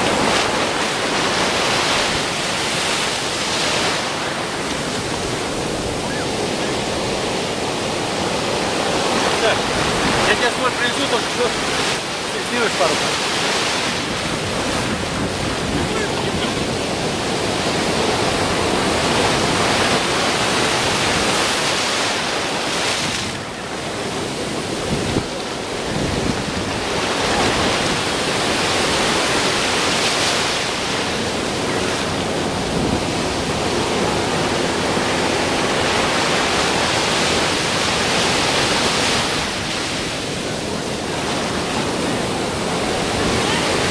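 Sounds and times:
heavy ocean surf breaking: 0.0s - 43.9s.

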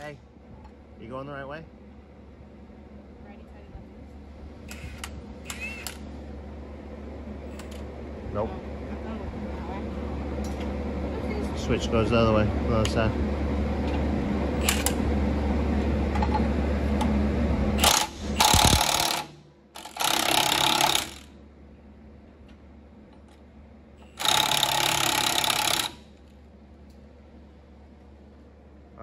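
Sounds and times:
steady low hum: 0.0s - 29.0s
impact wrench hammering: 17.8s - 21.3s, 24.2s - 26.1s.

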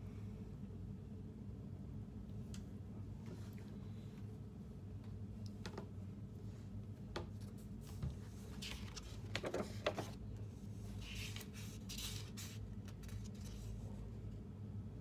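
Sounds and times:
faint steady hum: 0.0s - 15.0s
paper rustle: 7.4s - 10.2s, 10.9s - 14.0s.

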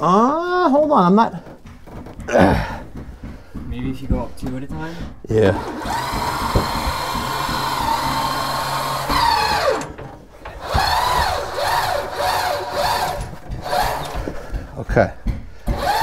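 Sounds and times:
electric motor whining: 5.4s - 14.3s, 15.7s - 16.0s.

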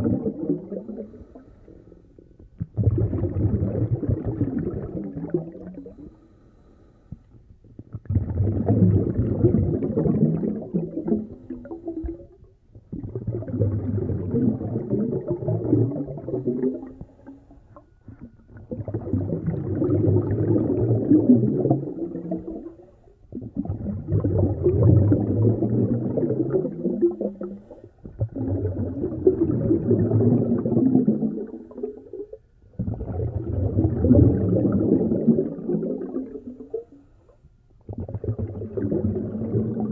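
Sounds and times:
breathing through a snorkel underwater: 0.7s - 2.2s, 5.7s - 7.4s.

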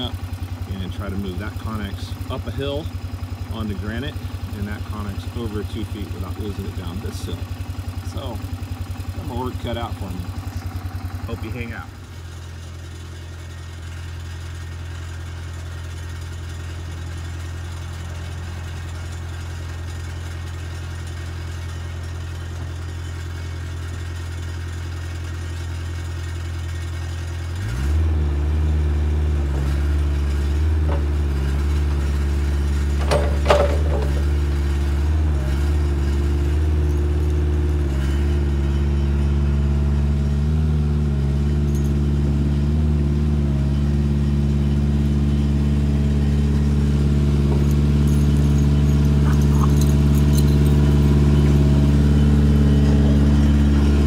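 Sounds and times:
excavator diesel engine idling: 0.0s - 54.0s
short sharp metal clanks: 32.9s - 34.5s.

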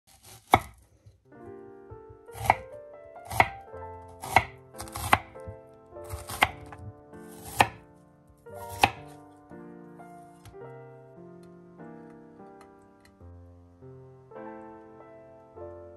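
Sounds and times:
knife slicing onion: 0.1s - 0.8s, 2.3s - 2.6s, 3.3s - 3.6s, 4.2s - 7.8s, 8.6s - 9.2s
soft keyboard music: 0.5s - 15.9s.

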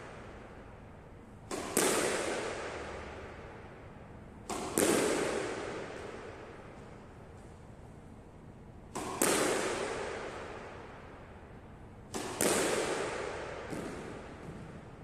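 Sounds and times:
racket striking squash ball: 1.4s - 3.5s, 4.4s - 7.6s, 8.8s - 11.0s, 12.1s - 15.0s.

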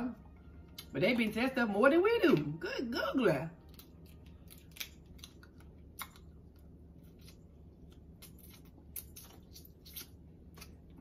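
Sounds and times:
chewing crab meat: 3.6s - 11.0s.

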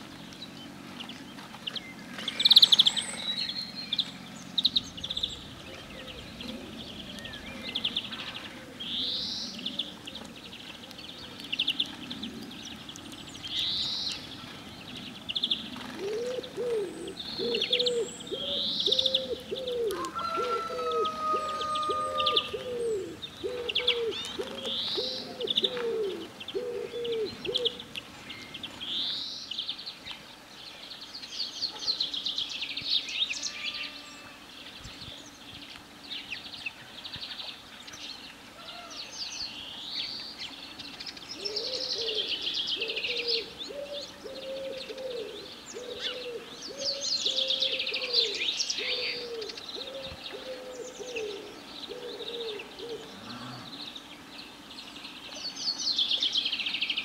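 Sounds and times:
songbirds chirping: 0.0s - 57.0s
low cooing bird call: 2.1s - 14.8s, 15.4s - 29.1s, 40.5s - 54.4s.

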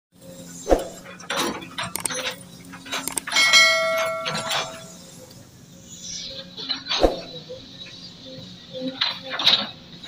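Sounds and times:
mouse clicks: 1.9s - 2.2s, 3.0s - 3.3s
notification bell ding: 3.3s - 5.0s.

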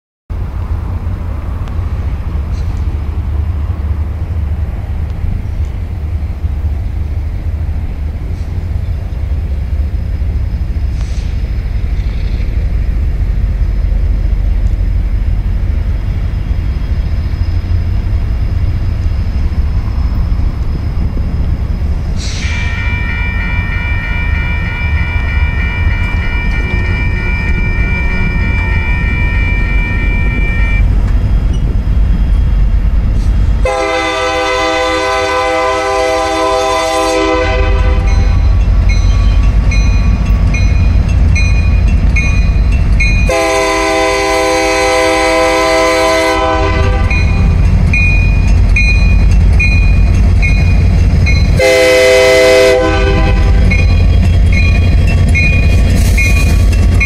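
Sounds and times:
crossing warning bell ringing: 15.3s - 32.7s, 33.7s - 57.0s.

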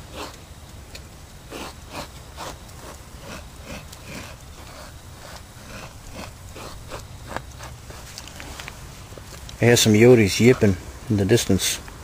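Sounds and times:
fingers scraping powder on slab: 1.5s - 8.7s.

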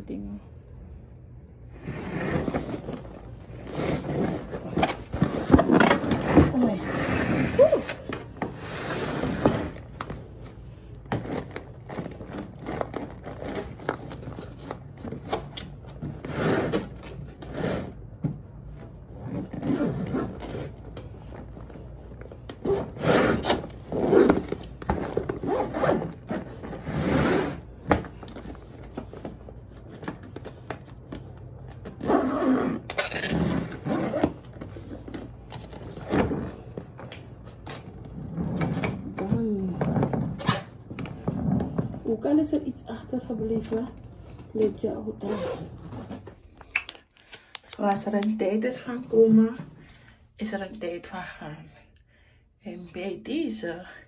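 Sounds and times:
suitcase zipper pulls: 1.7s - 10.0s, 16.1s - 18.0s, 19.1s - 20.9s, 22.5s - 27.7s, 31.8s - 36.8s, 45.2s - 46.4s
scraping and rubbing handling noises: 1.7s - 42.5s.

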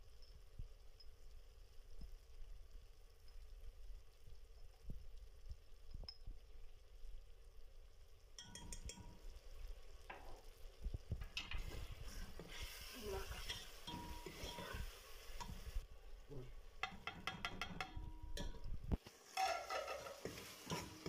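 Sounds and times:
faint sizzle: 0.0s - 21.0s
metal spoon stirring and scraping: 8.4s - 9.3s, 11.2s - 15.9s, 16.8s - 21.0s.

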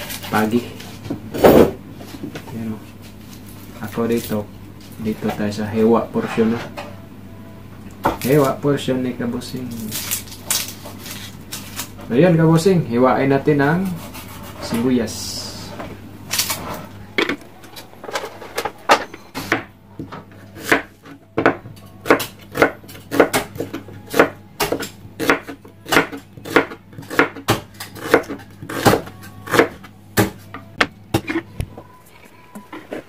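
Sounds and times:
knife chopping onion on board: 19.5s - 31.4s.

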